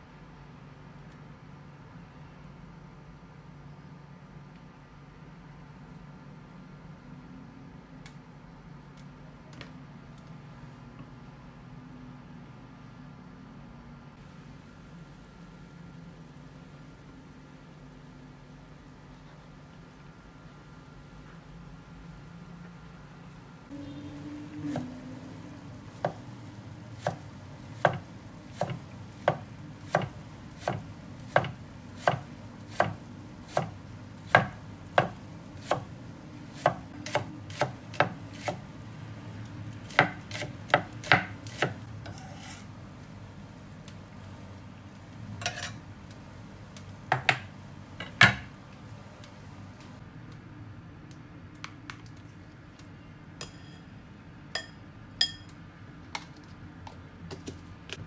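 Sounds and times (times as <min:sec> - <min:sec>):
low steady hum: 0:00.0 - 0:58.0
knife chopping on wooden board: 0:27.8 - 0:35.9, 0:36.5 - 0:38.6, 0:39.9 - 0:42.6.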